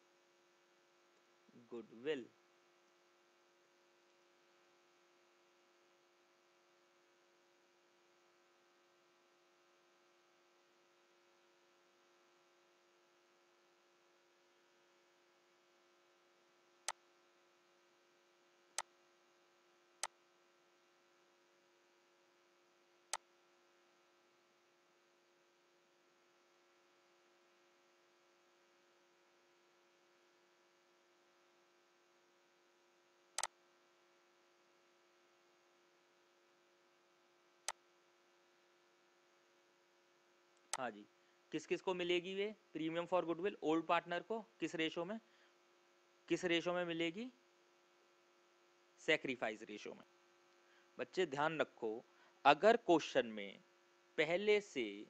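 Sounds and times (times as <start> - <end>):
faint electrical hum: 0.0 - 55.0
computer mouse clicks: 33.4 - 33.6.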